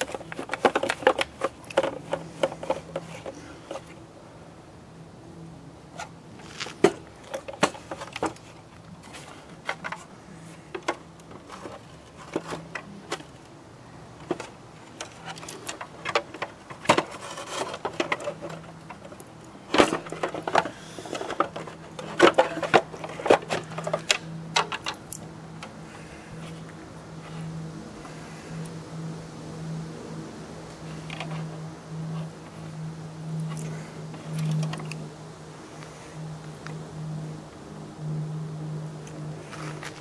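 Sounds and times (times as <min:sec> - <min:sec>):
plastic and metal parts handling: 0:00.0 - 0:04.0, 0:06.0 - 0:13.5, 0:14.2 - 0:25.7
faint steady hum: 0:00.0 - 0:40.0.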